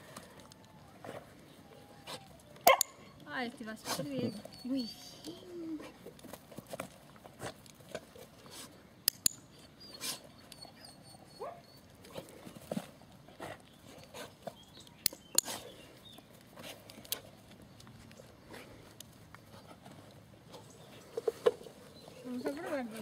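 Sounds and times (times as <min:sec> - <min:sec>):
dog whimpering: 0:03.9 - 0:06.0, 0:09.6 - 0:11.8, 0:22.2 - 0:23.0.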